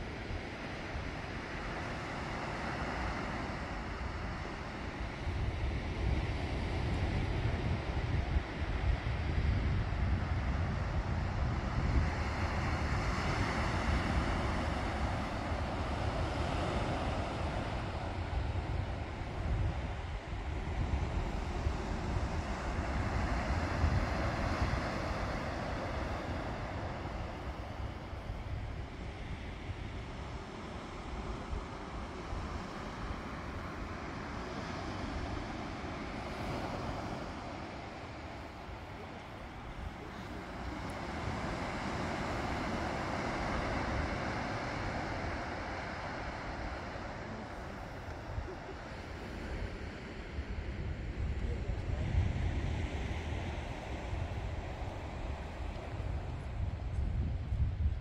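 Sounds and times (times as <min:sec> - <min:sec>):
surf washing onto beach: 0:00.0 - 0:58.0
wind rumbling on microphone: 0:00.0 - 0:58.0.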